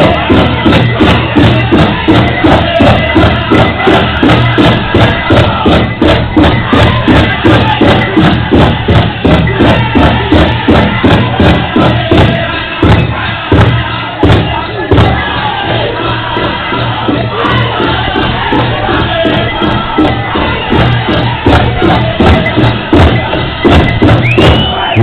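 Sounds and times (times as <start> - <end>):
big drum beating: 0.0 - 25.0
people singing: 0.0 - 25.0.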